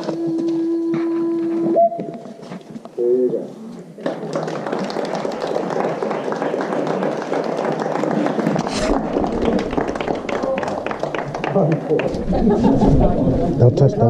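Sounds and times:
people talking: 0:03.0 - 0:03.8, 0:11.4 - 0:14.0.

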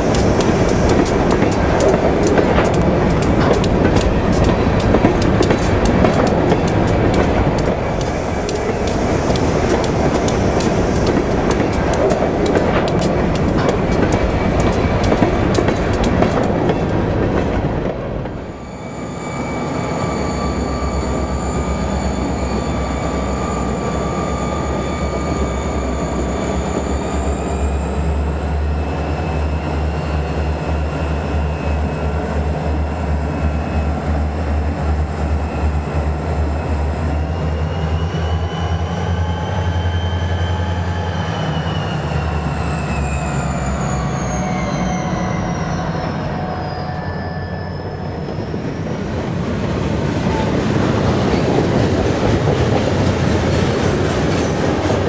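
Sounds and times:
model freight cars clicking over rails: 0:00.0 - 0:17.5
diesel locomotive engine throbbing: 0:00.0 - 0:55.0.

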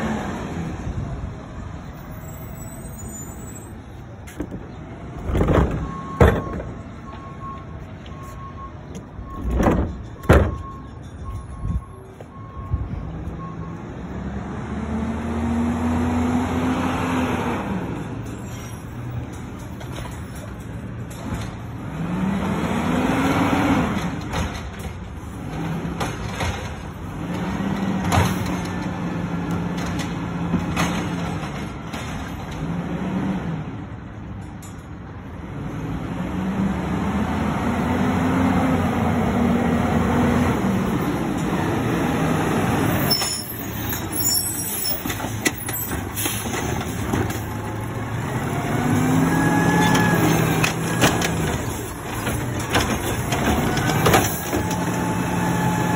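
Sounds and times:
garbage truck diesel engine revving: 0:35.5 - 0:43.1, 0:46.5 - 0:55.9.

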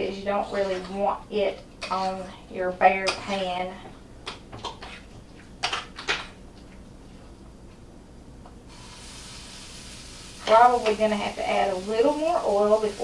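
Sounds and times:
batter sizzling in hot oil: 0:08.7 - 0:13.0.

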